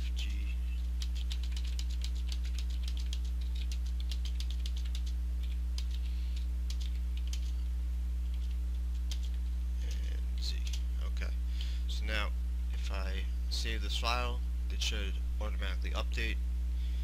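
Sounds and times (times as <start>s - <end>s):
steady low hum: 0.0s - 17.0s
computer keyboard keys clicking: 1.0s - 6.1s, 6.7s - 7.5s, 8.3s - 9.4s.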